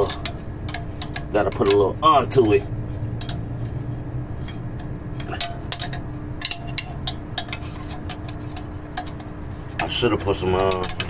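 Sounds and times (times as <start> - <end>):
steady low hum: 0.0 - 11.0
metal wrench clicking and clinking: 10.4 - 11.0.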